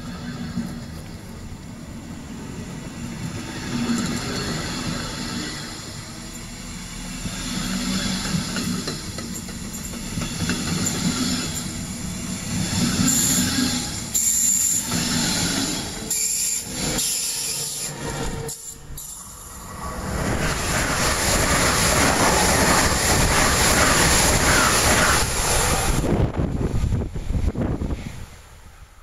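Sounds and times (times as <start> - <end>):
high-speed train rushing rumble: 0.0 - 29.0
train wheels on rails: 0.0 - 29.0.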